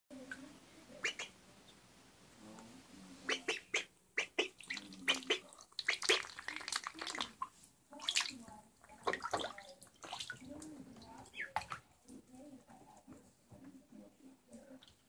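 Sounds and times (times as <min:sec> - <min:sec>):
ducklings splashing in water: 0:00.1 - 0:01.4, 0:03.2 - 0:12.4.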